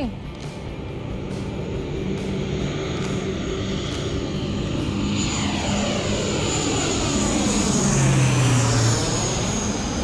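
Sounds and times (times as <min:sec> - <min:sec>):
propeller plane passing overhead: 0:00.0 - 0:10.0.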